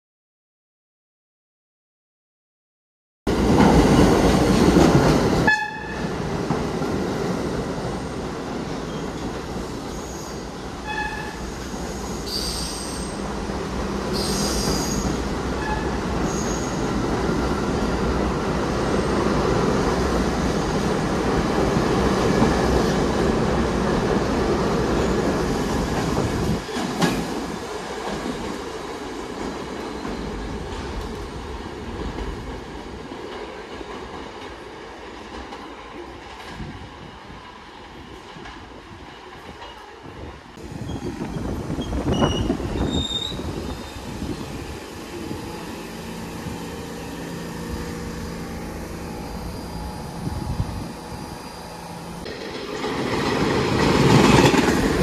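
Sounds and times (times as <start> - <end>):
subway train rumble: 3.3 - 55.0
high wheel squeals: 9.9 - 13.2, 14.1 - 17.0, 40.8 - 46.1, 47.0 - 52.2.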